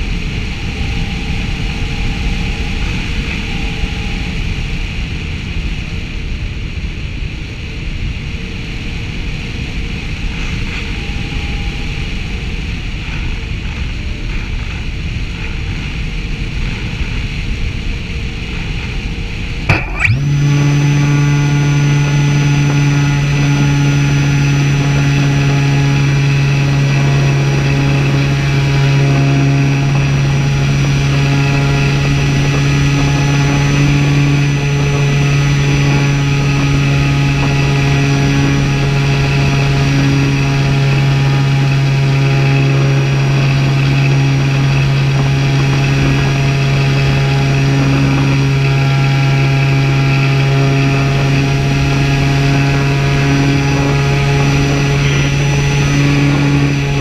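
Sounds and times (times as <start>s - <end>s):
propeller motor running: 0.0s - 6.0s, 18.0s - 57.0s
thin high whine: 19.7s - 57.0s.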